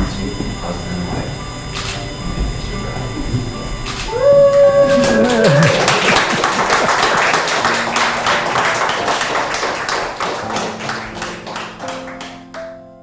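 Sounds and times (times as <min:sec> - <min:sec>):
people clapping: 0:04.0 - 0:12.8.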